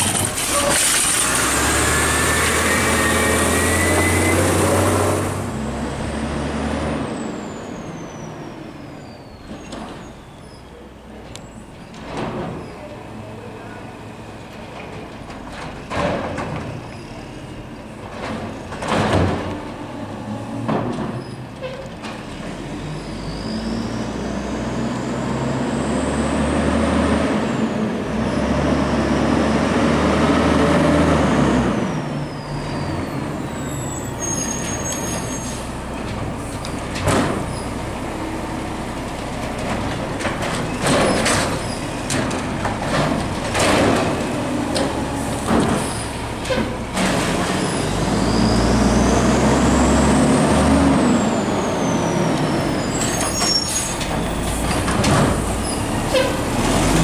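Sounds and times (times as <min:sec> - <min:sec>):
diesel engine revving with whine: 0:01.2 - 0:07.9, 0:22.7 - 0:33.2, 0:47.2 - 0:53.3, 0:55.3 - 0:57.0
garbage truck arm dumping bangs: 0:17.9 - 0:19.8, 0:39.5 - 0:48.3.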